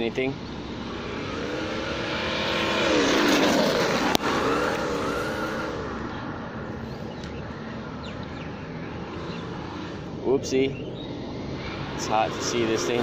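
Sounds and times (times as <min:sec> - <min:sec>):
simulated engine revving: 0:00.0 - 0:07.1, 0:11.1 - 0:13.0.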